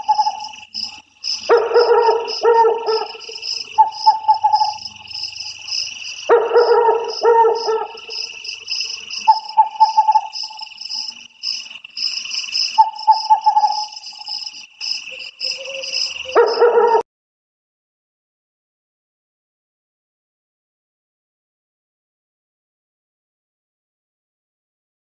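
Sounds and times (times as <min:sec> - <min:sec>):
high chirping chorus: 0:00.0 - 0:17.0
trilling calls: 0:00.0 - 0:17.0
short barking calls: 0:01.5 - 0:04.9, 0:06.2 - 0:08.4.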